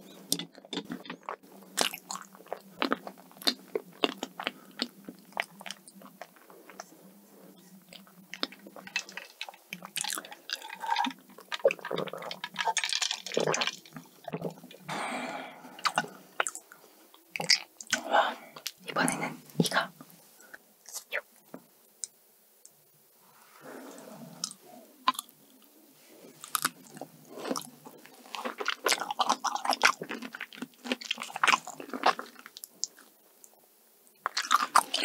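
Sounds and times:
chewing and mouth sounds: 0.1 - 14.9, 15.8 - 19.8, 23.9 - 25.3, 26.4 - 33.1, 34.2 - 35.0.

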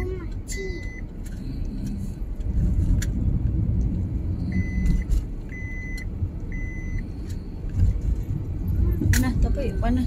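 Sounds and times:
car road and engine rumble: 0.0 - 10.0
electronic beeps: 4.5 - 7.0.

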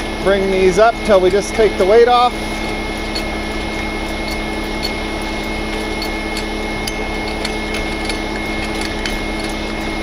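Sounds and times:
truck engine humming: 0.0 - 10.0
hand crank clicking: 3.0 - 10.0.

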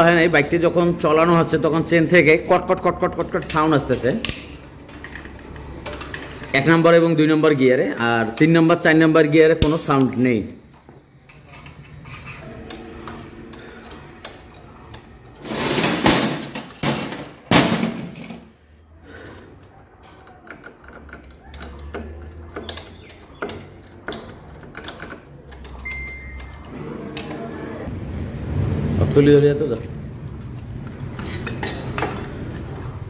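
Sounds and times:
metal cover scraping: 11.2 - 14.4, 15.2 - 18.5.

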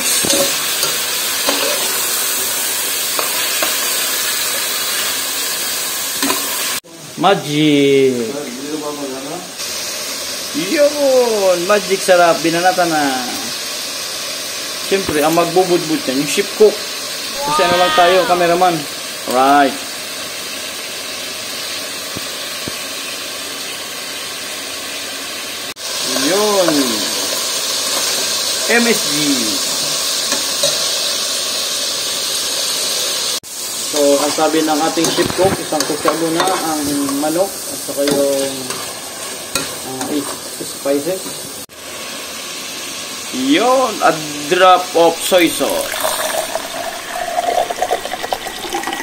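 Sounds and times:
chicken sizzling in hot oil: 0.0 - 49.0.

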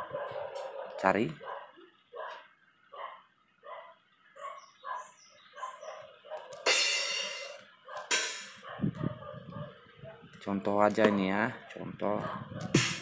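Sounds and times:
dog barking: 0.0 - 6.7, 7.8 - 10.3, 12.2 - 12.8
crash cymbal: 6.7 - 8.6.

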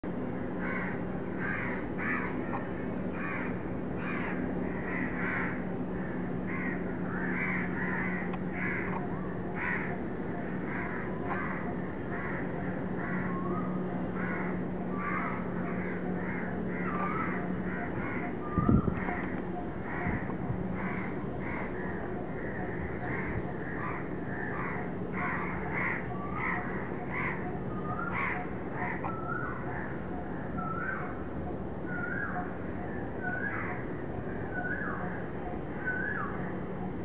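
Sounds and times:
steady low hum: 0.0 - 37.0
crows cawing: 0.5 - 30.0, 33.3 - 33.9.

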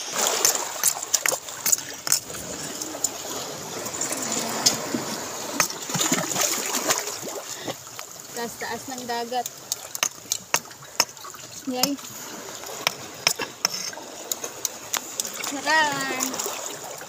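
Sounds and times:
short sharp splashes: 0.0 - 7.6
water washing over rocks: 0.0 - 17.0.

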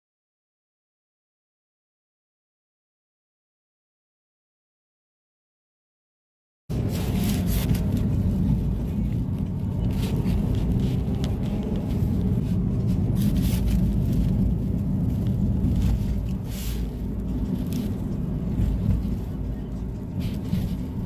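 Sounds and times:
car engine and road noise: 6.7 - 21.0.

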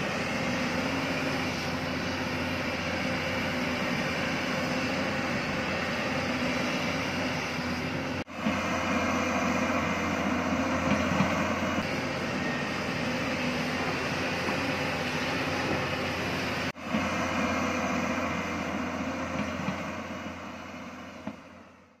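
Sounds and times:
excavator diesel engine under load: 0.0 - 22.0.

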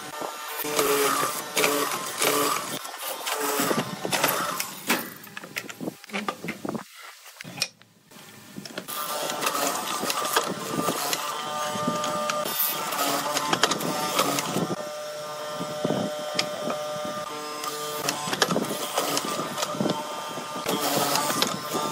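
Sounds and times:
machine motor humming: 0.0 - 4.8, 8.9 - 21.9
mortiser chisel cutting wood: 0.0 - 5.0, 8.6 - 21.9.

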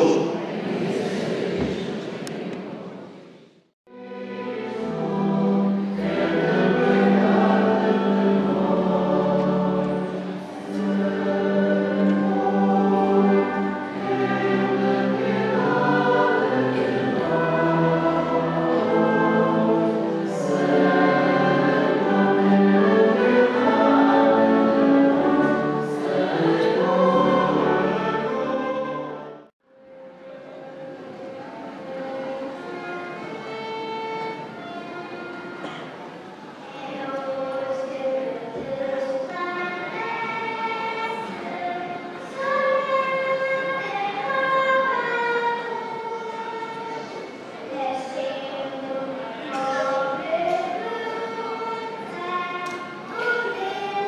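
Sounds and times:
choir singing a hymn: 0.0 - 3.2, 4.0 - 29.5, 30.1 - 54.0
wind band playing: 3.9 - 36.7.

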